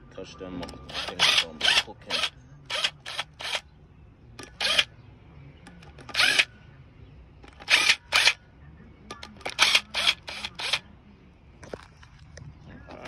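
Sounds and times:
cordless drill bursts: 0:00.8 - 0:03.6, 0:04.5 - 0:04.9, 0:06.1 - 0:06.5, 0:07.6 - 0:08.4, 0:09.4 - 0:10.8.

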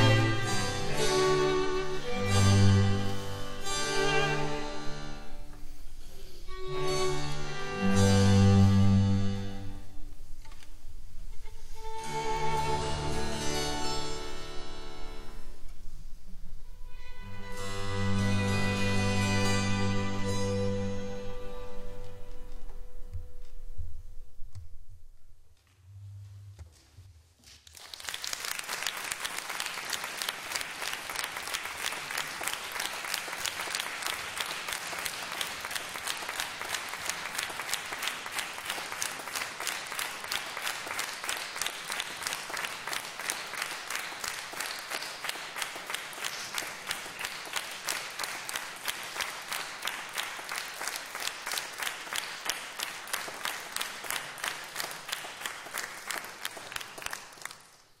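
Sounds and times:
audience applauding: 0:27.6 - 0:58.0.

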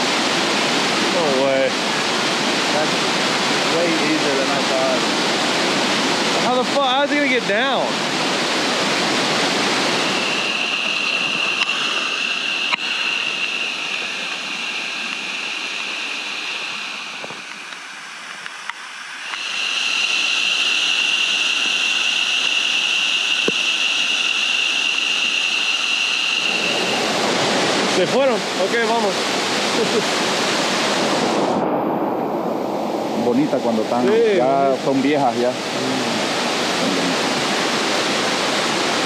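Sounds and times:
rushing water of waterfall: 0:00.0 - 0:19.9, 0:26.4 - 0:31.6, 0:33.3 - 0:39.0
steady high-pitched tone: 0:00.0 - 0:39.0.

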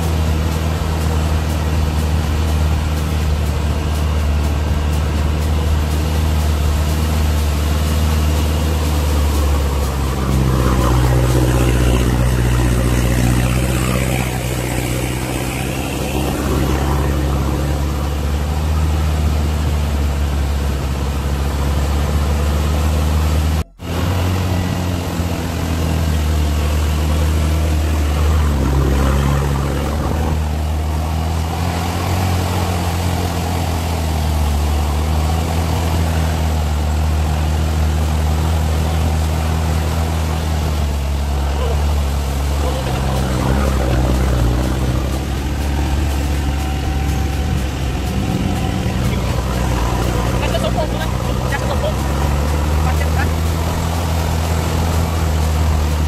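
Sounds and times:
engine running under load: 0:00.0 - 0:56.0
water washing: 0:00.0 - 0:56.0.

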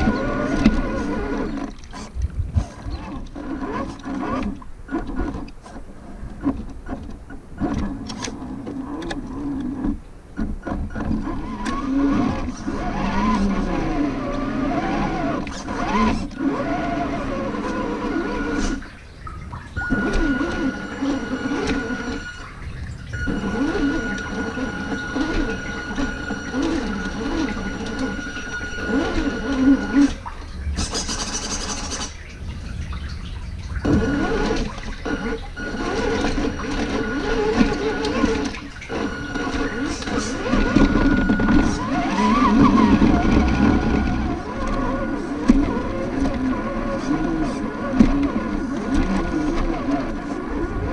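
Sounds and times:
rc truck motor whining: 0:00.0 - 0:06.9, 0:07.6 - 0:32.2, 0:33.8 - 0:50.9
brief hissing: 0:30.7 - 0:32.2.

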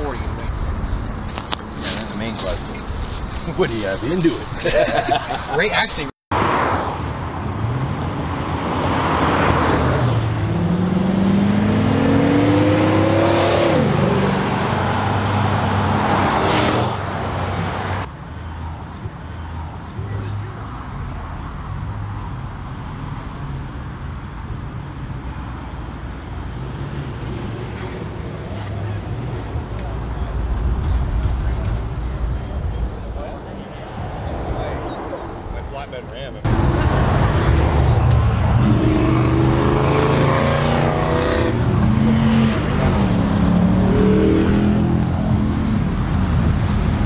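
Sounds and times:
car engine revving: 0:09.3 - 0:17.1, 0:36.5 - 0:47.0.

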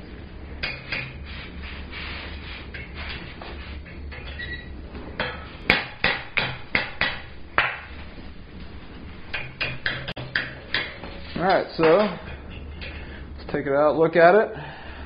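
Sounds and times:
hammer striking metal: 0:05.2 - 0:07.9, 0:09.3 - 0:13.1.

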